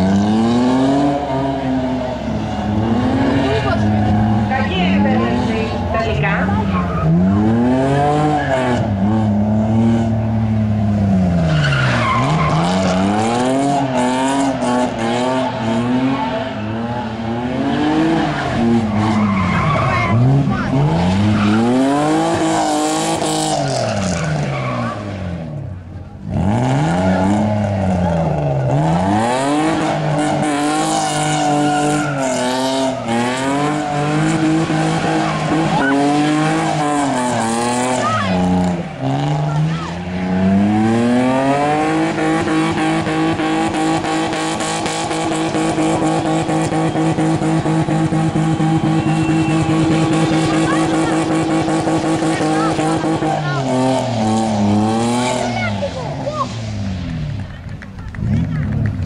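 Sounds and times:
car engine revving: 0:00.0 - 0:59.0
tyres squealing: 0:11.4 - 0:25.1.

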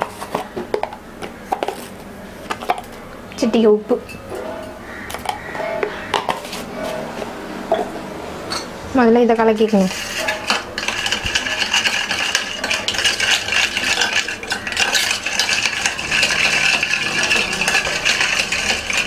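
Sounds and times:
spoon stirring and scraping metal bowl: 0:04.1 - 0:08.7, 0:09.4 - 0:19.0.

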